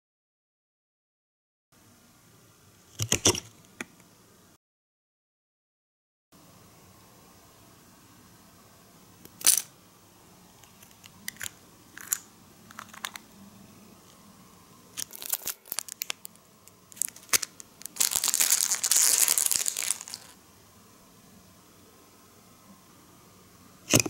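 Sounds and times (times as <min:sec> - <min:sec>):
plastic pieces clicking: 0:10.8 - 0:13.2, 0:15.0 - 0:16.3, 0:17.0 - 0:20.4
plastic bag crinkling: 0:15.0 - 0:20.4.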